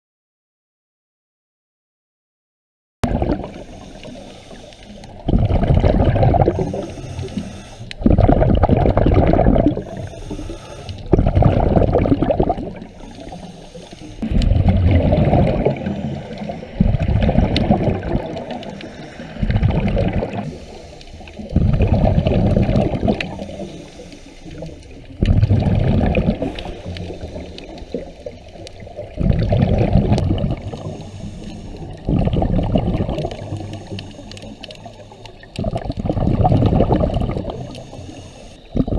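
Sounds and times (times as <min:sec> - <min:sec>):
scuba exhaust bubbles gurgling: 0:03.0 - 0:38.9
underwater water noise: 0:03.0 - 0:38.9.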